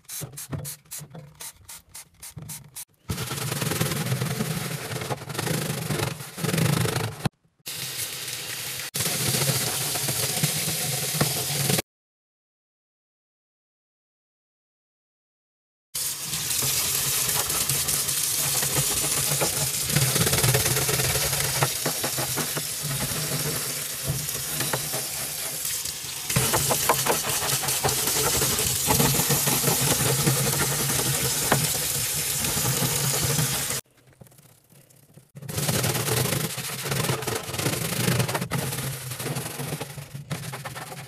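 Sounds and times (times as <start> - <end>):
scrub brush scrubbing: 0.0 - 7.3, 16.5 - 33.8.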